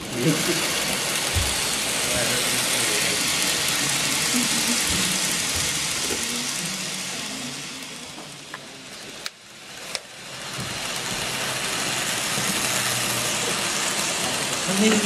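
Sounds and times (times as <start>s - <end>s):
model train wheels hissing on rail: 0.0s - 15.0s.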